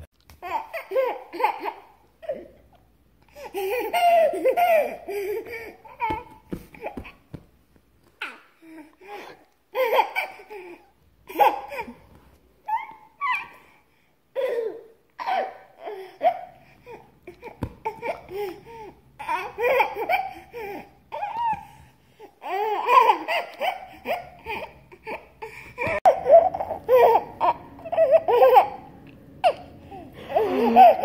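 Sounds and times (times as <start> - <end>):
baby giggling: 3.3 - 7.3, 8.2 - 12.0, 22.4 - 31.0.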